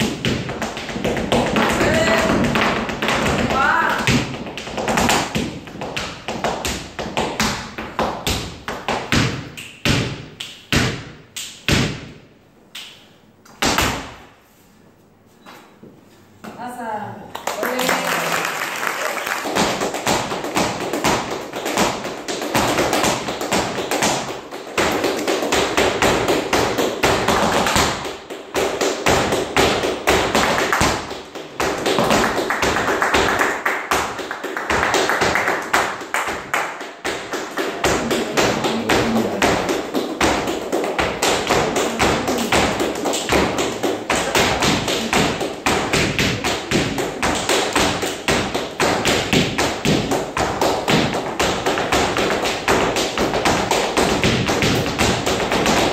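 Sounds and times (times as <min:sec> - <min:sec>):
hand-clapping: 0:17.3 - 0:24.2, 0:31.7 - 0:48.2.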